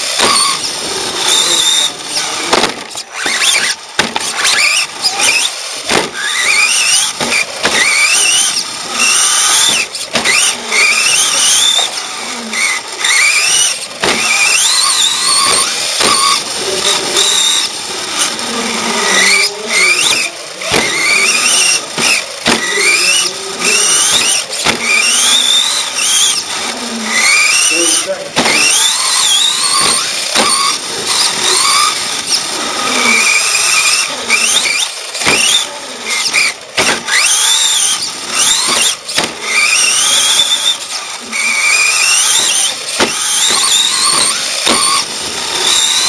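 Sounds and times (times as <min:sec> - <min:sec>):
toy truck motor whining: 0:00.0 - 0:46.0
chassis knocking on bumps: 0:02.4 - 0:10.5, 0:14.0 - 0:17.6, 0:20.1 - 0:22.9, 0:23.8 - 0:25.3, 0:28.3 - 0:32.5, 0:36.8 - 0:40.0, 0:42.4 - 0:46.0.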